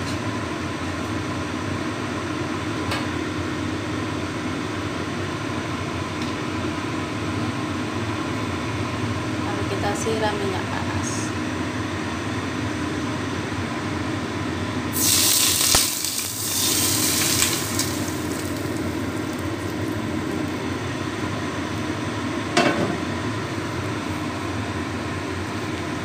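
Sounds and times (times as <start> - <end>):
hot oil sizzling: 14.9 - 26.0.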